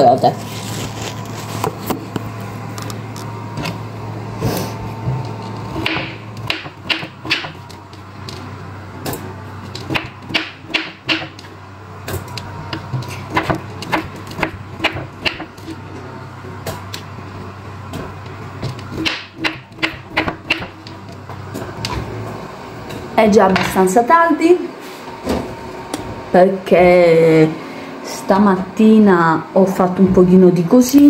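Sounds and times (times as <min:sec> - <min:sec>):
steady low hum: 0:00.0 - 0:31.0
knife chopping on cutting board: 0:05.8 - 0:07.6, 0:09.9 - 0:11.4, 0:13.3 - 0:15.5, 0:18.9 - 0:20.8.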